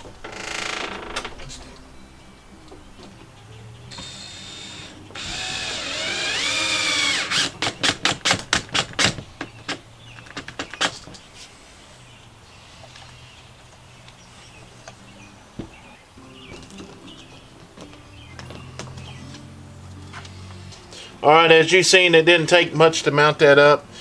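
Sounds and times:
cordless drill whirring: 4.0s - 7.6s.

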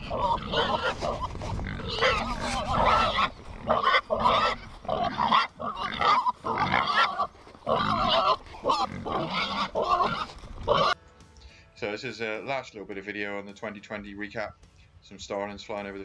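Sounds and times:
pigs squealing and grunting: 0.0s - 11.0s.

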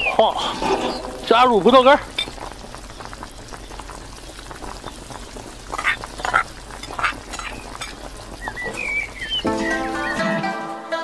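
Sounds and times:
pot of food bubbling: 0.0s - 10.3s.

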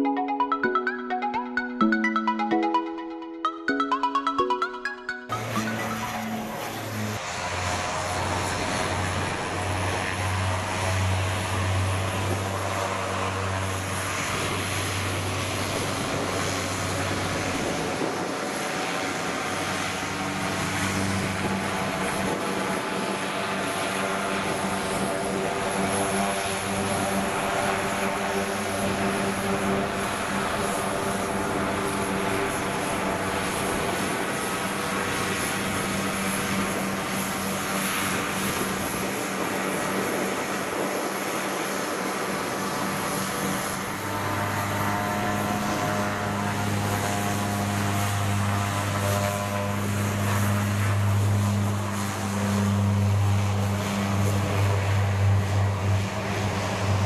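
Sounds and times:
turboprop engines running: 5.4s - 57.0s.

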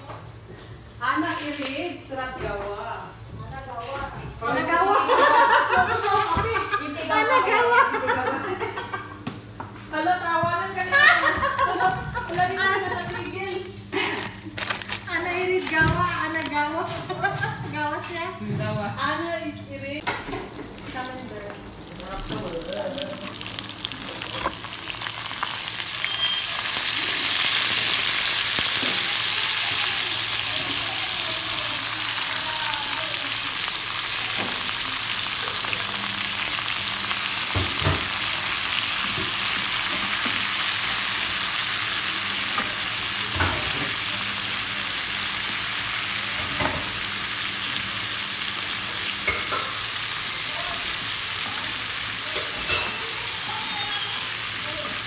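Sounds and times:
vegetables sizzling in oil: 10.8s - 17.9s, 20.0s - 55.0s.

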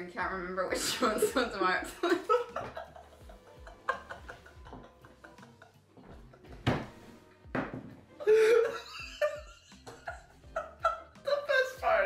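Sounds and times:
man and woman laughing: 2.0s - 6.7s, 8.2s - 11.2s.

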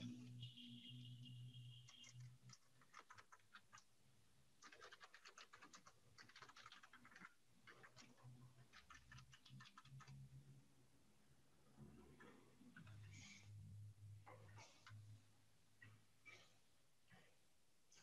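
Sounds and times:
faint keyboard typing: 1.5s - 10.6s.

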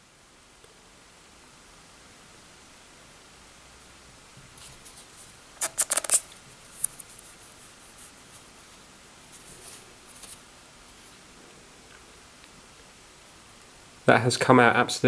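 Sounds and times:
soft rubbing on phone screen: 4.6s - 11.2s
sharp crinkling clicks: 5.6s - 7.2s.

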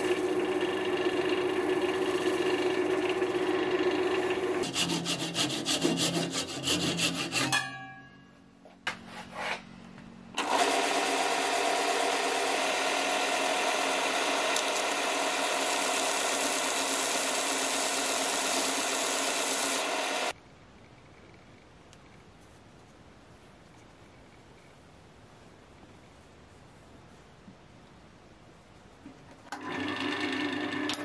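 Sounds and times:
belt sander rasping: 0.0s - 7.7s
sandpaper rubbing on spinning wood: 1.9s - 3.5s, 4.6s - 7.5s, 15.6s - 20.3s.

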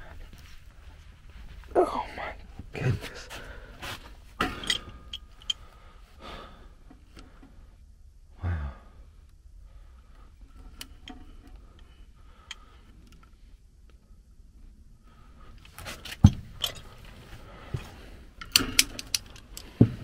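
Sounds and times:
wrenches clicking on metal fittings: 4.5s - 5.6s, 18.4s - 19.8s.

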